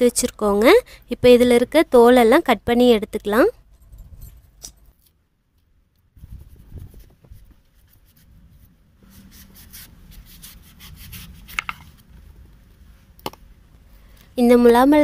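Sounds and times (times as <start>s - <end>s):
knife scraping melon rind: 9.1s - 12.0s.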